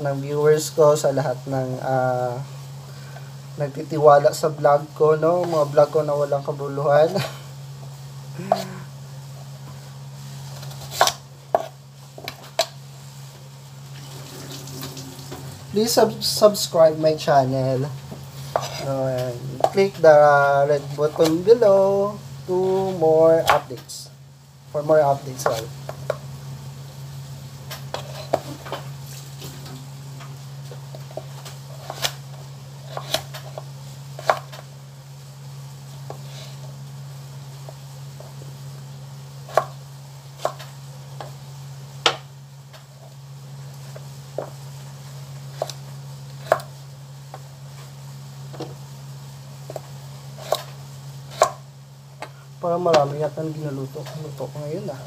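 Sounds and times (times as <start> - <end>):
steady low hum: 0.0 - 55.0
knife chopping on cutting board: 18.5 - 18.9, 32.9 - 34.6, 46.4 - 46.7, 50.4 - 50.7, 51.3 - 51.6.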